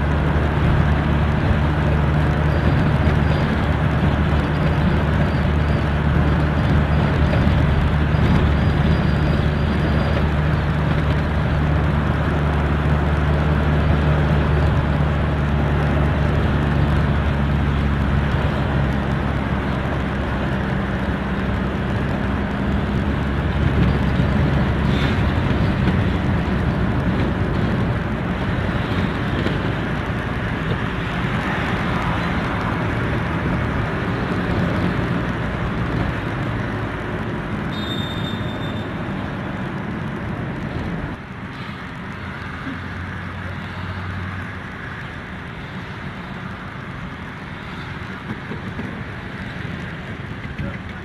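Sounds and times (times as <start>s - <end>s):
car cabin road rumble: 0.0s - 51.0s.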